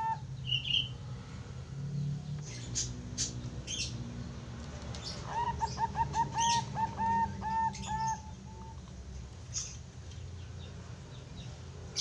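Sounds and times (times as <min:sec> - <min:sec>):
dove cooing: 0:00.0 - 0:00.3, 0:05.2 - 0:08.8.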